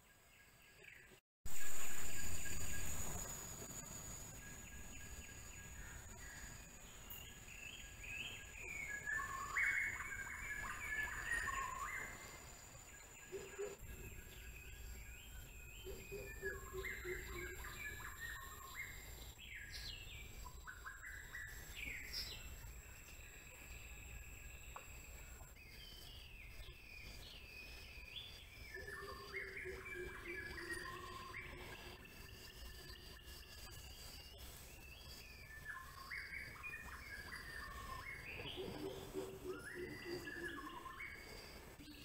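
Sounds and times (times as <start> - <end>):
birds calling and chirping: 0.0 - 42.0.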